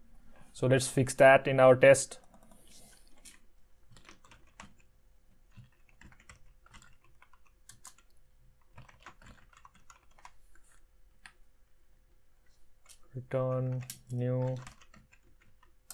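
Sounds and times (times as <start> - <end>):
faint keyboard typing: 2.2 - 11.4, 12.4 - 15.9.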